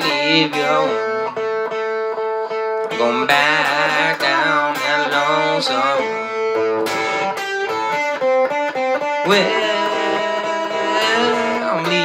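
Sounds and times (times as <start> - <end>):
man singing: 0.0 - 1.4, 2.9 - 7.2, 9.2 - 12.0
electric guitar blues lick: 0.0 - 12.0.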